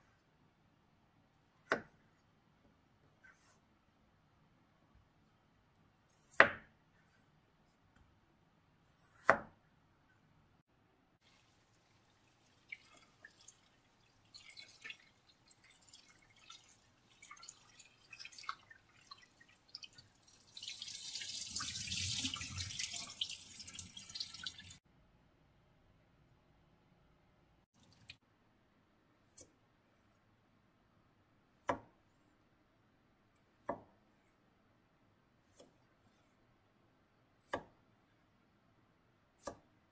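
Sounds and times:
small splashes and taps: 0:11.2 - 0:24.8, 0:27.8 - 0:28.2
tap water running into saucepan: 0:11.2 - 0:24.8.

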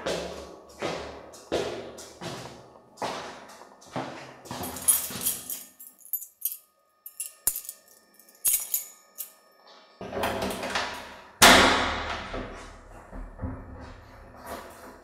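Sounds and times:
keys jingling: 0:04.5 - 0:09.4.

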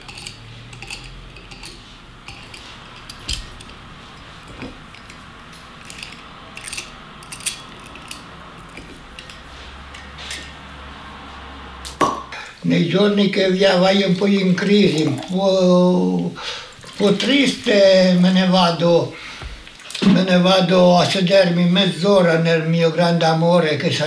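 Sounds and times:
corkscrew clicks and creaks: 0:00.0 - 0:10.7.

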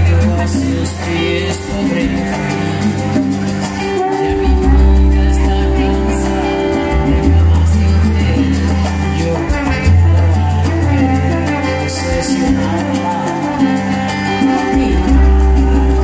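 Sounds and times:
hand percussion: 0:00.0 - 0:16.0
heavy bass line: 0:00.0 - 0:16.0
live salsa band playing: 0:00.0 - 0:16.0
man singing lead: 0:00.0 - 0:16.0.

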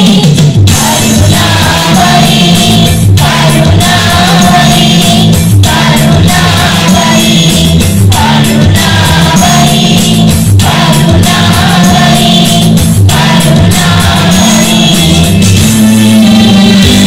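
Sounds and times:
children's choir singing: 0:00.0 - 0:16.1
amplified instrumental backing: 0:00.0 - 0:17.0.

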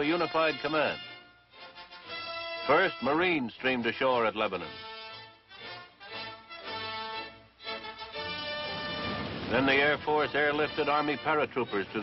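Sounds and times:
film score sustained notes: 0:07.6 - 0:12.0.

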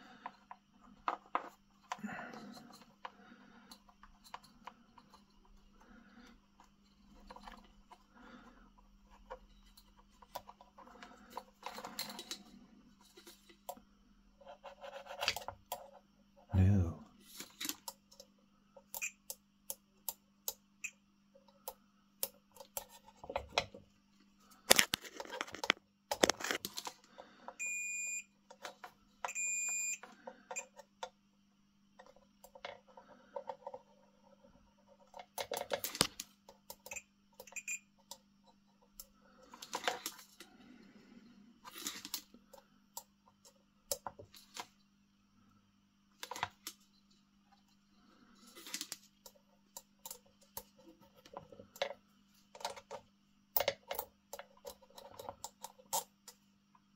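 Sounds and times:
multimeter high beeps: 0:27.6 - 0:28.3, 0:29.3 - 0:30.0.

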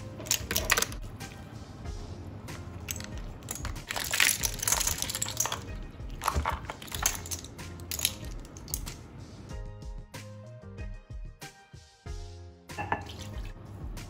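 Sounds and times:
shells clattering into steel bowl: 0:00.0 - 0:01.0, 0:02.8 - 0:09.0
faint background music: 0:00.0 - 0:14.0.

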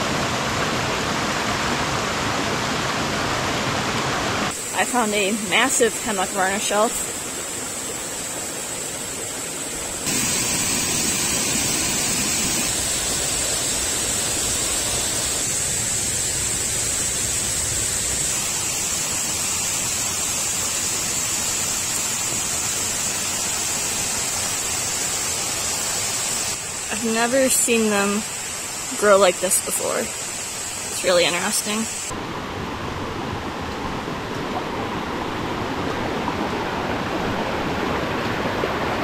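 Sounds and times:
water hissing: 0:04.5 - 0:32.2.

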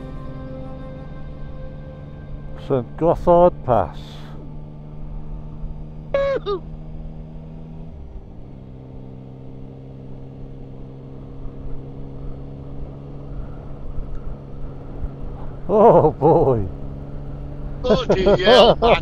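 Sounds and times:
motorcycle engine running: 0:00.0 - 0:19.0
short voice sound: 0:06.2 - 0:06.6.

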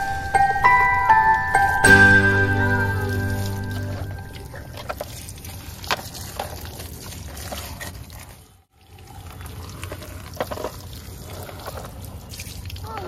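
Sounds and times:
tap water splashing on plastic: 0:04.4 - 0:07.7.

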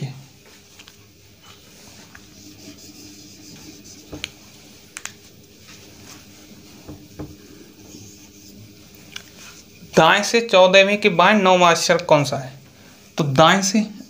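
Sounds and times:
low room hum: 0:00.0 - 0:14.0
marker scratching on whiteboard: 0:01.4 - 0:10.0.

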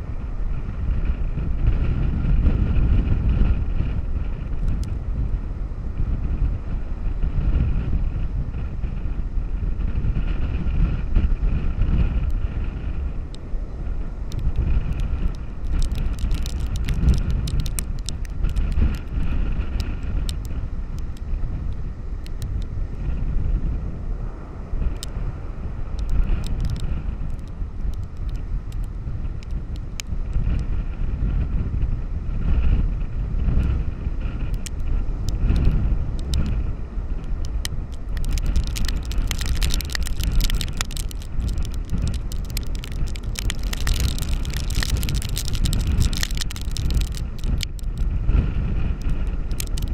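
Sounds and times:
wind buffeting the microphone: 0:00.0 - 0:49.9
sharp ticks on the camera: 0:01.6 - 0:05.3, 0:10.1 - 0:13.5, 0:14.2 - 0:23.1, 0:24.8 - 0:25.2, 0:25.9 - 0:31.4, 0:33.4 - 0:49.9.

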